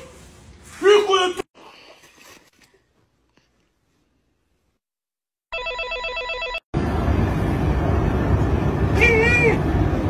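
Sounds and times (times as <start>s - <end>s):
electronic telephone ring: 5.5s - 6.6s.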